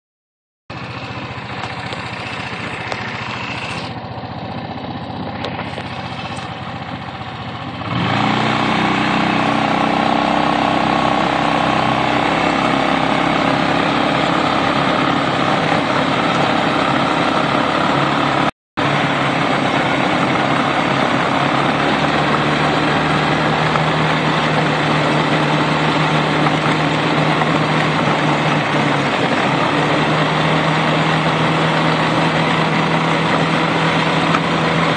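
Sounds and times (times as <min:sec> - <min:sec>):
quad bike engine running: 0:00.7 - 0:34.9.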